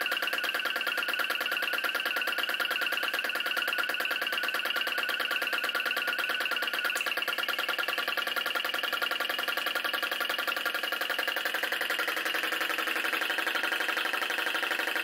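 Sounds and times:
ringing tone: 0:00.0 - 0:09.0
small engine running fast: 0:00.0 - 0:15.0.

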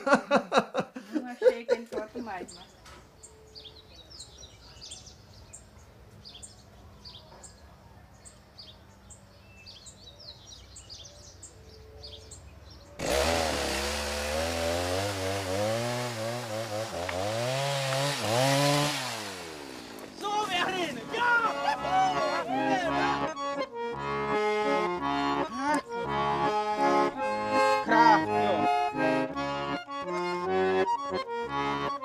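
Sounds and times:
birds chirping faintly: 0:01.5 - 0:13.0
chainsaw cutting tree trunk: 0:13.0 - 0:22.4, 0:28.5 - 0:29.4.

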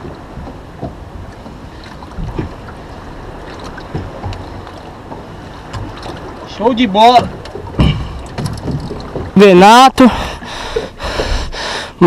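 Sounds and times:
wind rumble on microphone: 0:00.0 - 0:09.4
water noise: 0:00.0 - 0:12.0.

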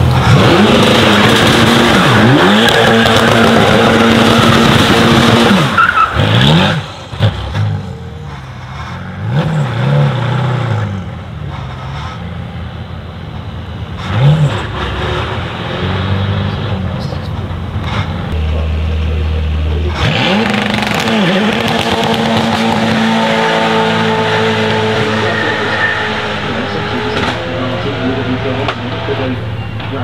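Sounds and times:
car engine revving: 0:00.0 - 0:30.0
tyres squealing: 0:17.0 - 0:30.0.

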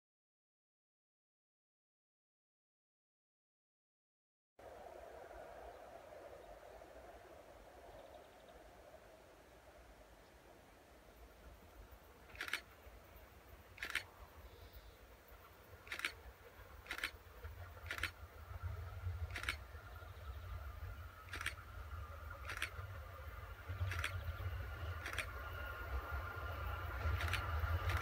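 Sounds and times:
distant train rumble: 0:04.6 - 0:28.0
sharp clicks: 0:12.3 - 0:12.8, 0:13.7 - 0:14.1, 0:15.8 - 0:16.2, 0:16.8 - 0:17.2, 0:17.8 - 0:18.2, 0:19.3 - 0:19.7, 0:21.3 - 0:21.6, 0:22.4 - 0:22.8, 0:23.8 - 0:24.2, 0:25.0 - 0:25.3, 0:27.0 - 0:28.0.

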